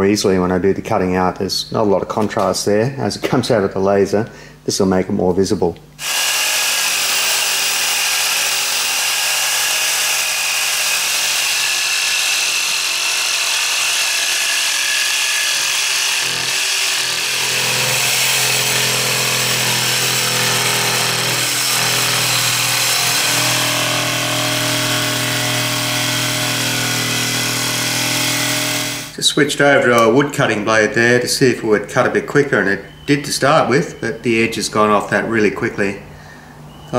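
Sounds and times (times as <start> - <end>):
jigsaw rasping through sheet: 6.0 - 29.1.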